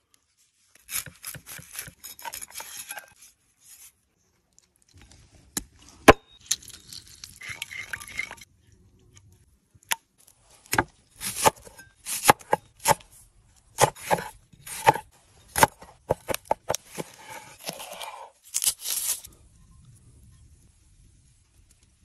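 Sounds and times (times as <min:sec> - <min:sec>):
knife crunching through vegetable: 0:15.6 - 0:19.3.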